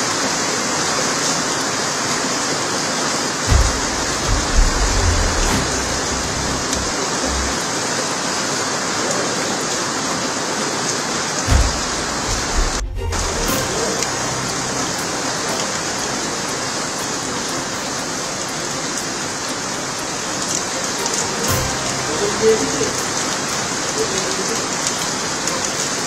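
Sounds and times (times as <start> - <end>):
heavy rain pouring on road: 0.0 - 26.0
low thumps: 3.5 - 7.6, 11.5 - 14.1.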